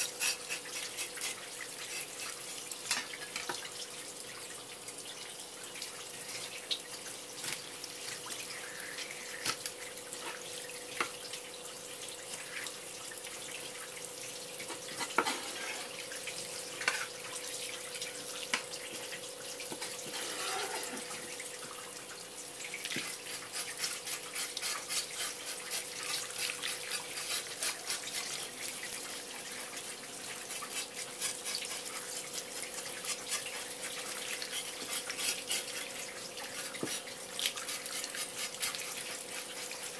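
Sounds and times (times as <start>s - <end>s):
knife scraping fish scales: 0.0s - 2.5s, 19.8s - 21.2s, 23.0s - 28.6s, 30.5s - 39.9s
faint steady hum: 0.0s - 39.9s.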